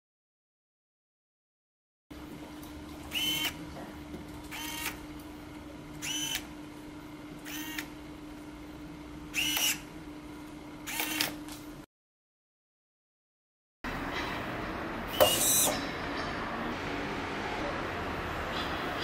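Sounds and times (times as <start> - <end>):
electric motors whining: 3.0 - 3.8, 4.4 - 5.1, 5.9 - 6.5, 7.4 - 7.9, 9.3 - 9.9, 15.0 - 16.2.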